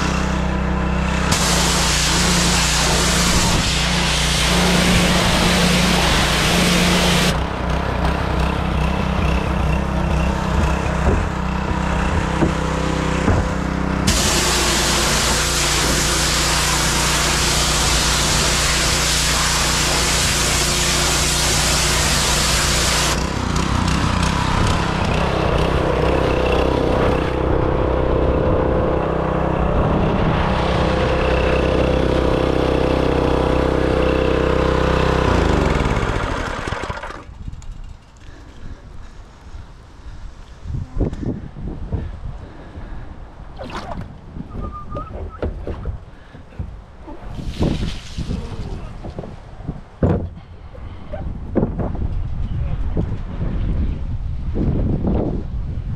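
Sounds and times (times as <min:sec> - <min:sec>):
pressure washer engine running: 0:00.0 - 0:37.6
water spray hissing into bin: 0:01.3 - 0:07.4, 0:14.1 - 0:23.2, 0:47.3 - 0:49.0.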